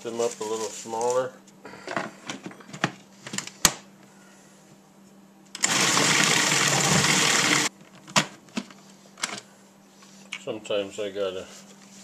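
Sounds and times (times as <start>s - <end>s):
food processor chopping: 5.6s - 7.7s.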